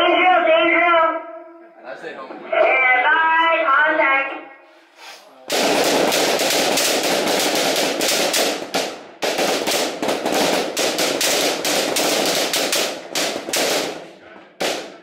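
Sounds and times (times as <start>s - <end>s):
rifles firing: 5.5s - 15.0s.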